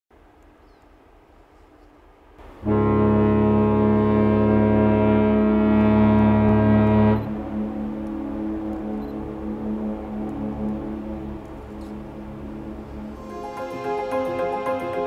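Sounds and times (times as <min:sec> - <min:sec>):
quiet hum: 0:00.2 - 0:04.4, 0:07.2 - 0:13.2
ship horn deep blast: 0:02.4 - 0:15.0.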